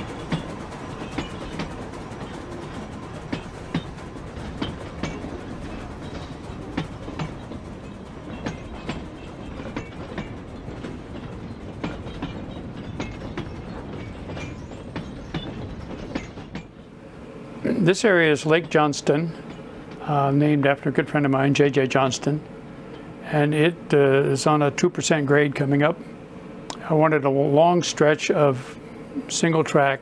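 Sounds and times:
model train wheels clicking: 0:00.0 - 0:16.8
train running noise: 0:00.0 - 0:30.0.

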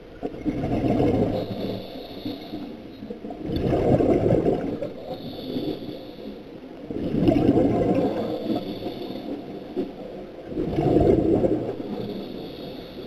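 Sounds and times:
gurgling exhaled bubbles: 0:00.2 - 0:01.8, 0:03.1 - 0:05.2, 0:06.8 - 0:12.2
regulator inhale hiss: 0:01.4 - 0:02.9, 0:05.0 - 0:06.7, 0:08.1 - 0:10.0, 0:11.8 - 0:13.0.

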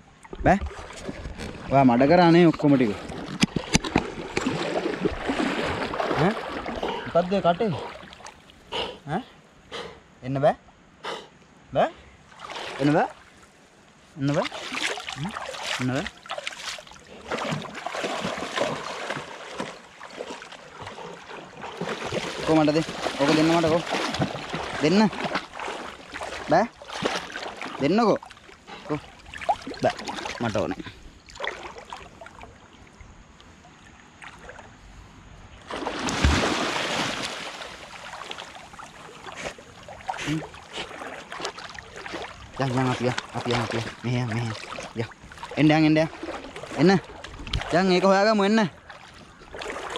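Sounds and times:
dog splashing through water: 0:00.7 - 0:08.4, 0:14.3 - 0:32.4, 0:35.7 - 0:48.2, 0:48.8 - 0:49.9.

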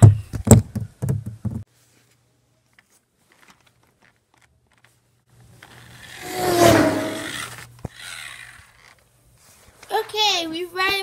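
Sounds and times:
rustling handling noise: 0:01.7 - 0:05.6.

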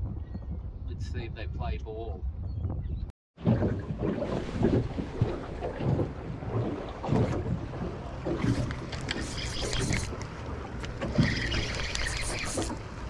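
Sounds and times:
wind buffeting microphone: 0:00.0 - 0:11.7
water lapping at boat hull: 0:03.4 - 0:13.0.

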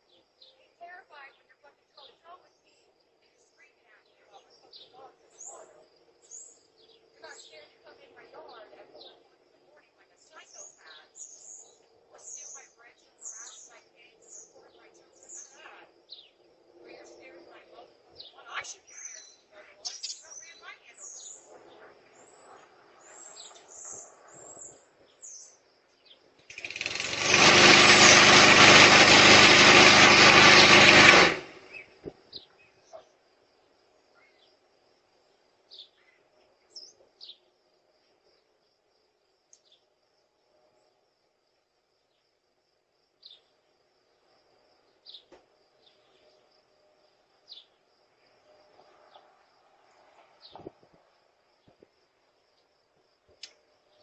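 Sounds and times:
faint bird chirps: 0:00.0 - 0:26.5, 0:34.0 - 0:34.6, 0:35.3 - 0:37.5
loud motor running: 0:26.5 - 0:31.8.

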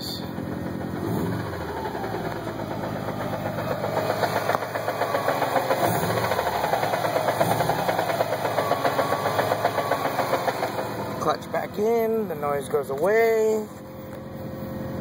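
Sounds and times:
car engine idling: 0:00.0 - 0:15.0
rapid rattle: 0:00.4 - 0:11.4.

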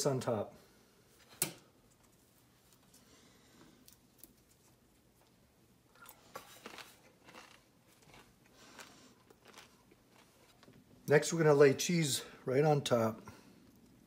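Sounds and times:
crisp bacon crinkling and crunching: 0:06.0 - 0:10.8.

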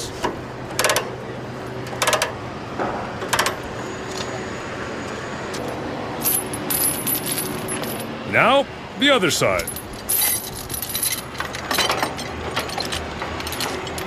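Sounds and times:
chains clinking and rattling: 0:05.6 - 0:08.1, 0:09.6 - 0:14.0.

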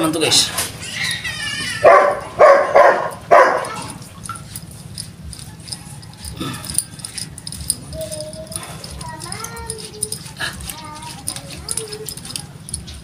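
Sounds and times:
dog barking: 0:01.8 - 0:04.0.

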